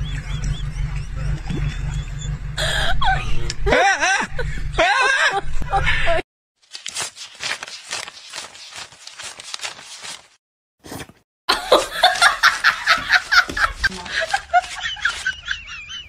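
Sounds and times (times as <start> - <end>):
burst of laughter: 11.5 - 16.0.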